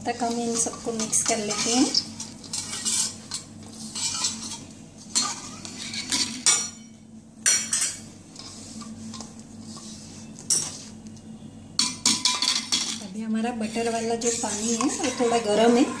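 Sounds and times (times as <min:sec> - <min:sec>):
fingers scraping flour in metal bowl: 0:13.7 - 0:16.0.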